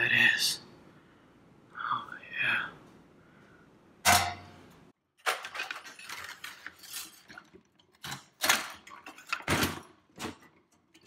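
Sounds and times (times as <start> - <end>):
metal and plastic parts clattering: 5.2 - 11.0.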